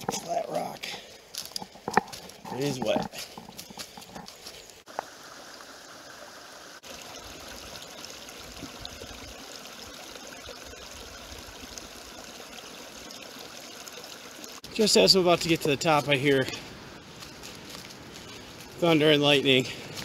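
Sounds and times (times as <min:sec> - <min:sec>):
forest stream trickling: 0:00.0 - 0:20.0.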